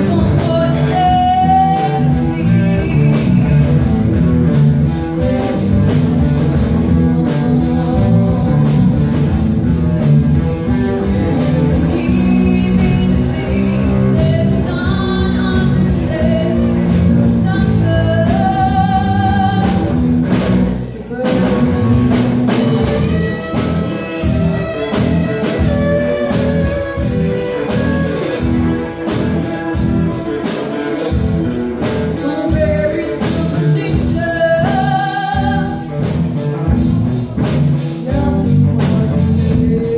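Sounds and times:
woman singing: 0.0 - 4.0, 4.8 - 9.4, 11.0 - 24.0, 32.0 - 36.2, 37.8 - 39.9
drum kit: 0.0 - 39.9
electric guitars: 0.0 - 39.9.

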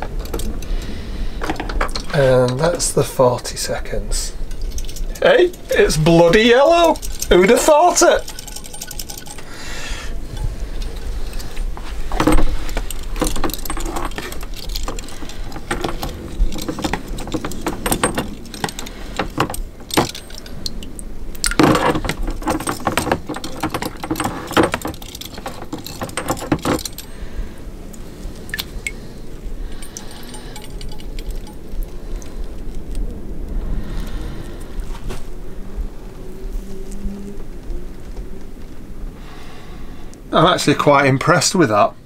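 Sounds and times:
metal fasteners clinking: 0.0 - 3.1, 3.8 - 33.1.

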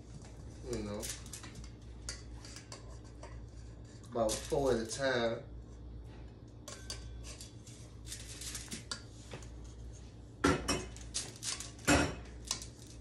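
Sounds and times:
metal tongs clinking on steel bowl: 6.6 - 7.6.

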